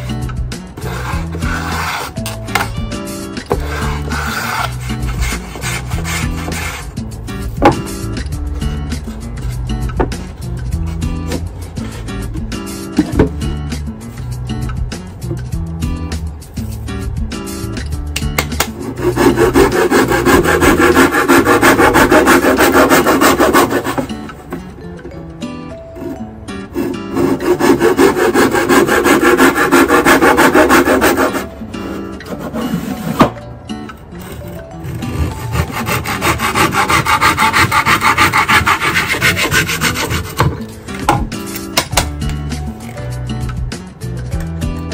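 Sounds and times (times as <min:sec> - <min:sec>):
handsaw cutting wooden board: 0:00.8 - 0:02.7, 0:03.5 - 0:06.9, 0:18.6 - 0:24.2, 0:26.7 - 0:33.3, 0:34.4 - 0:40.6.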